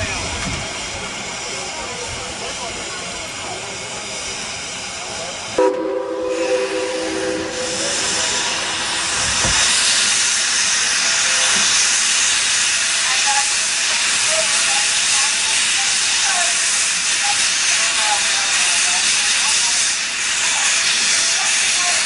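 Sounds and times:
steam blowing off hiss: 0.1s - 22.0s
steam whistle: 5.6s - 8.6s.

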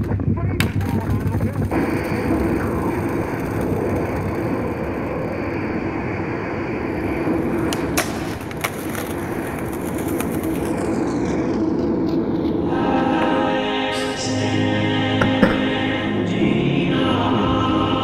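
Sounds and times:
skateboard clacks: 0.0s - 5.8s, 6.6s - 12.6s, 15.2s - 15.7s
skateboard wheels rolling on pavement: 0.8s - 13.4s
music: 12.5s - 18.0s.

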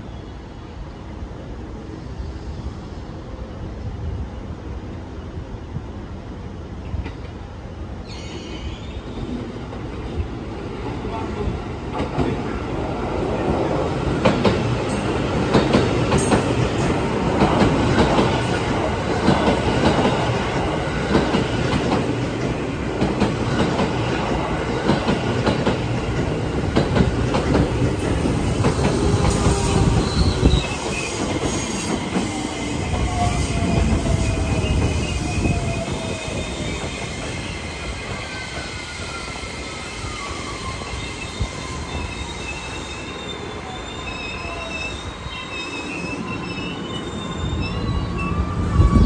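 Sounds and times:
train braking whine: 27.5s - 49.0s.

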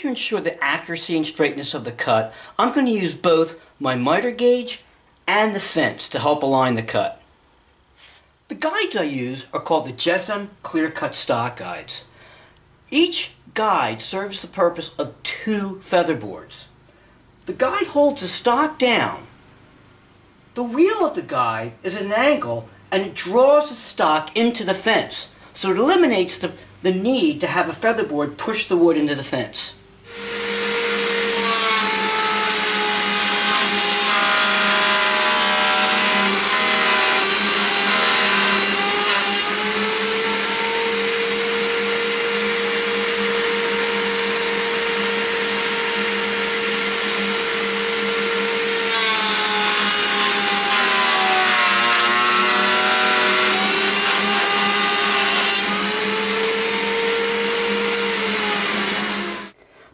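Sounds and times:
router whining while cutting wood: 30.1s - 59.6s.

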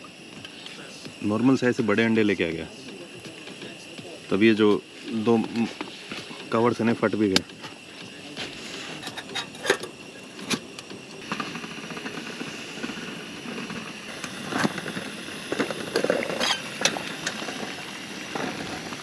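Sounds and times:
gas stove hissing: 0.0s - 19.0s
water bubbling: 13.2s - 19.0s.

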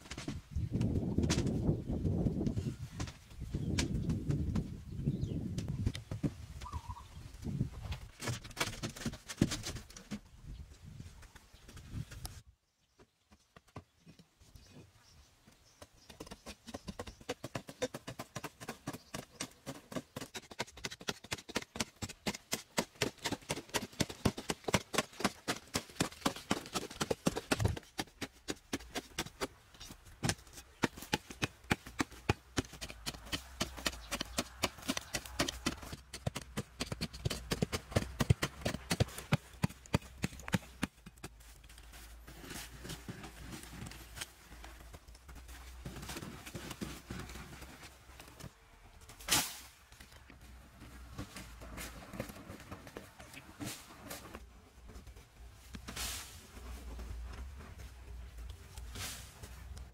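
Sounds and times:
hand tool hacking into dry earth: 30.2s - 41.3s.

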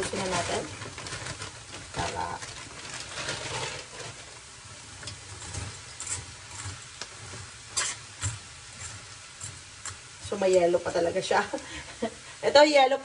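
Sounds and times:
frozen beans tumbling into pan: 0.0s - 11.9s
metal spoon scraping pan: 5.2s - 10.0s.

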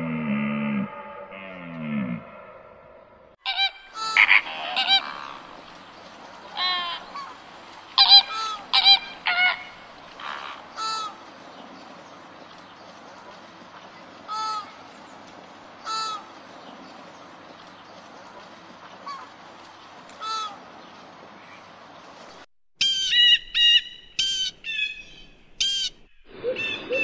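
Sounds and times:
flamingos honking: 3.4s - 11.6s, 13.2s - 14.9s, 15.8s - 16.5s, 20.1s - 21.6s
faint background hiss: 3.5s - 22.4s.

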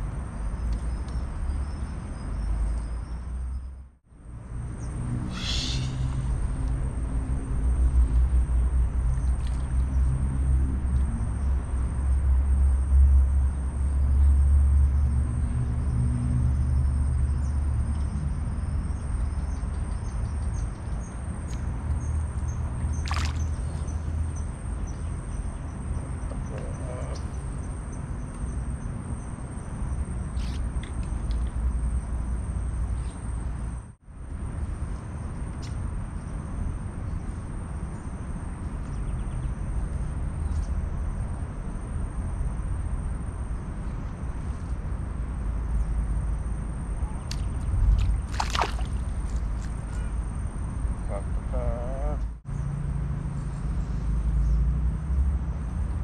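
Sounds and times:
wind rumbling on microphone: 28.8s - 52.4s.

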